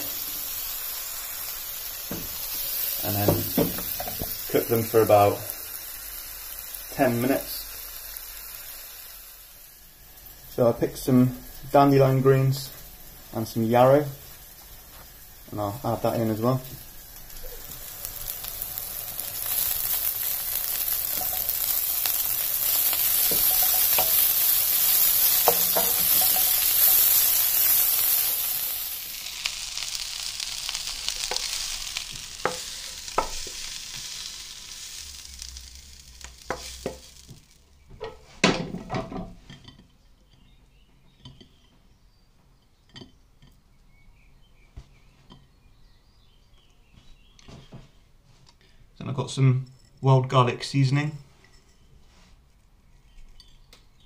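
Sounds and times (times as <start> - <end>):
food sizzling in butter: 0.0 - 38.2
wooden spoon tapping pan: 23.0 - 26.9, 32.4 - 33.6, 36.5 - 37.1.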